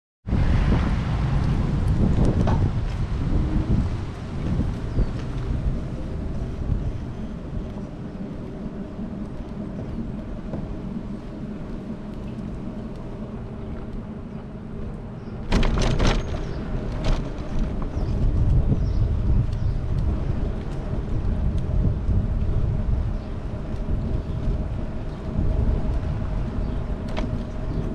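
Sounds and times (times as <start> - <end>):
vehicle road rumble: 0.2 - 27.9
wind buffeting microphone: 0.2 - 27.9
sharp knocks: 15.5 - 17.2.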